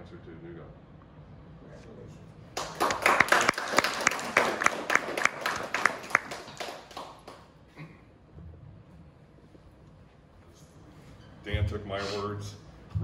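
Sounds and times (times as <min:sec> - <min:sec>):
small group applauding: 0:02.5 - 0:07.8.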